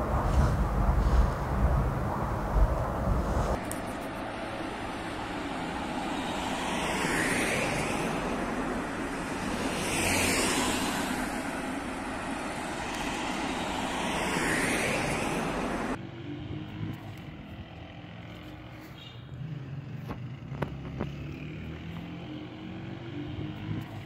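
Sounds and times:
cars passing on a road: 0.0 - 24.0.

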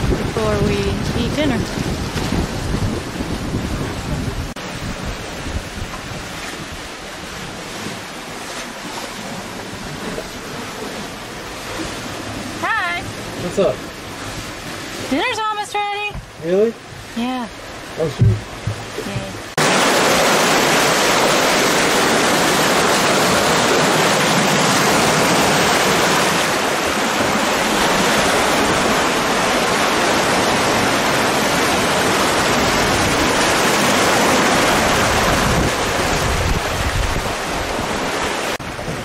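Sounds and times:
wind rushing: 0.0 - 6.3
water rushing past boat: 0.0 - 39.0.

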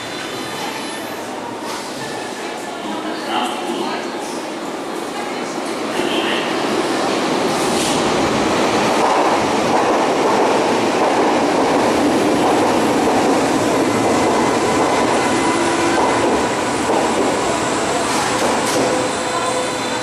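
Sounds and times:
train wheels rumbling on rails: 4.9 - 20.0.

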